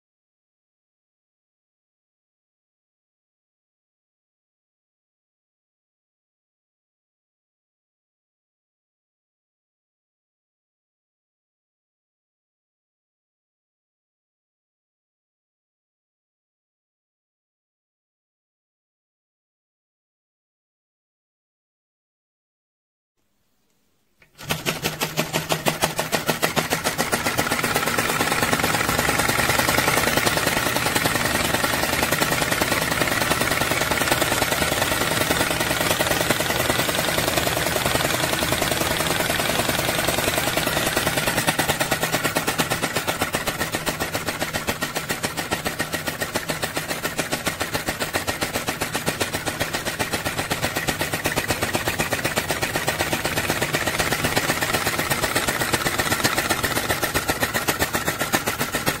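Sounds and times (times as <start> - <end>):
model engine clattering: 24.2 - 59.0.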